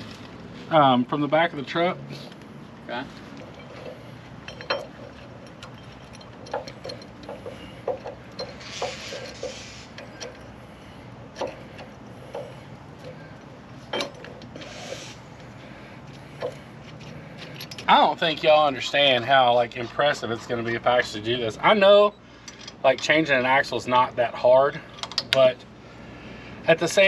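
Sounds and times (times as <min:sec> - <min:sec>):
metallic clicks and knocks: 0:03.4 - 0:10.5, 0:11.3 - 0:13.2, 0:25.0 - 0:25.4
brief metal scraping: 0:08.5 - 0:10.0.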